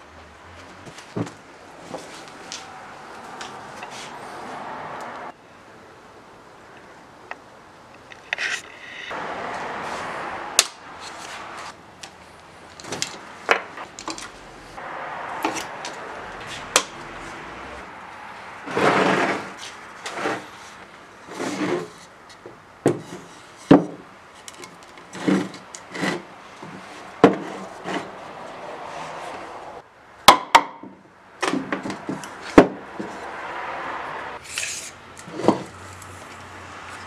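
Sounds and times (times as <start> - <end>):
wood scraping and rubbing: 8.0 - 10.2, 18.6 - 22.1, 24.4 - 29.7.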